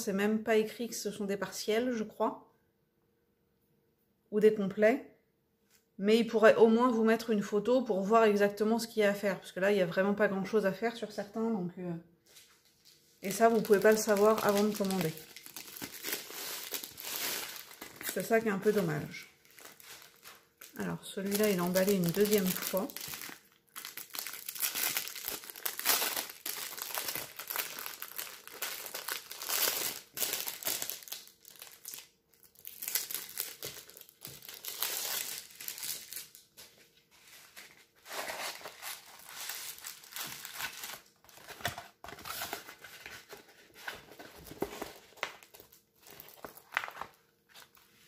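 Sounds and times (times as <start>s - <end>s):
packaging crinkling and tearing: 12.6s - 47.9s.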